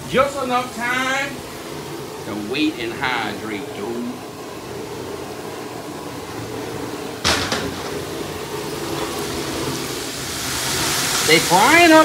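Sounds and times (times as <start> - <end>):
sharp clunk: 7.2 - 8.1
crawfish frying in oil: 7.3 - 12.0.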